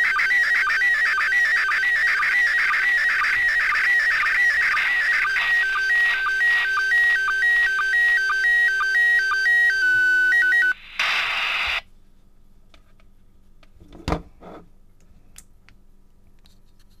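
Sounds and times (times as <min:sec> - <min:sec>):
radio static burst: 0:02.7 - 0:06.8, 0:10.6 - 0:11.8.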